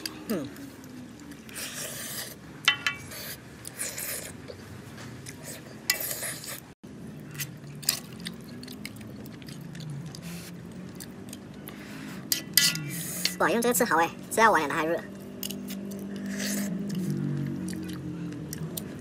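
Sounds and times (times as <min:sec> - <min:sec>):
chewing: 0:03.0 - 0:13.4, 0:15.2 - 0:19.0
utensils scraping a steel wok: 0:12.2 - 0:13.5.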